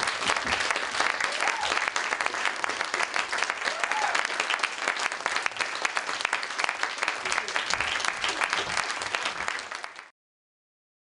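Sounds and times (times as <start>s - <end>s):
audience applauding: 0.0s - 10.1s.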